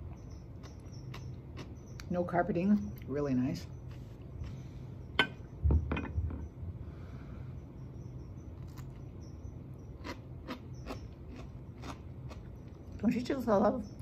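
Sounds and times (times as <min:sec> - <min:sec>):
person chewing crunchy food: 0:00.0 - 0:02.1, 0:08.6 - 0:09.2, 0:09.8 - 0:12.9.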